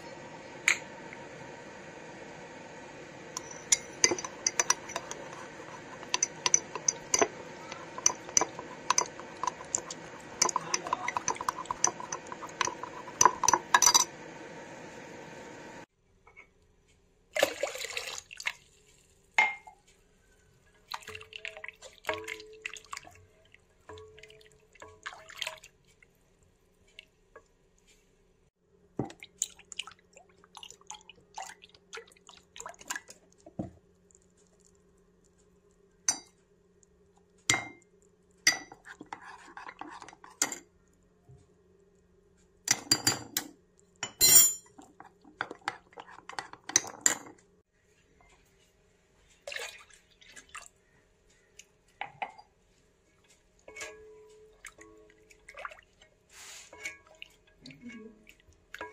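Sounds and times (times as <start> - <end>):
milk pouring: 3.1 - 14.5, 17.4 - 19.0, 29.0 - 33.4, 49.4 - 51.0
utensils scraping and clinking on pots: 3.2 - 15.4, 38.4 - 40.7, 42.7 - 47.4, 53.2 - 55.5, 56.3 - 58.9.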